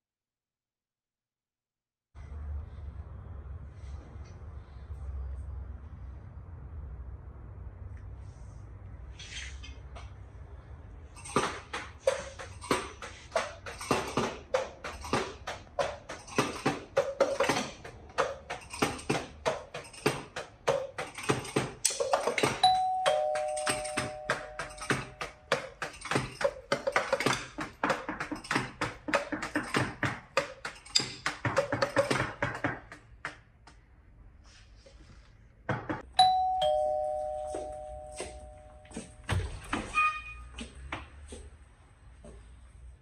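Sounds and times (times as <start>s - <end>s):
two-note doorbell chime: 22.6s - 25.2s, 36.2s - 39.3s.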